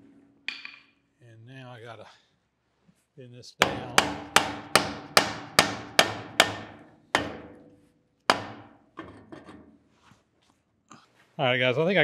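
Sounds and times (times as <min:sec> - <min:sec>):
hammer striking metal pipe: 0:00.5 - 0:01.0, 0:03.6 - 0:09.5.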